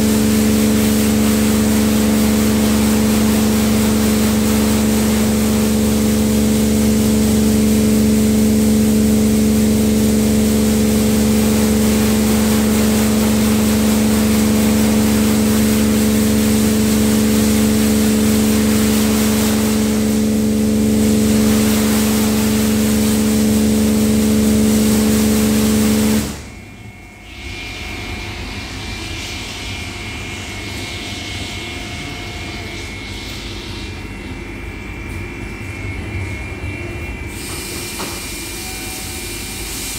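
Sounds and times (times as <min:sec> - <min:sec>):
water jets hissing: 0:00.0 - 0:26.4
car wash machine hum: 0:00.0 - 0:39.9.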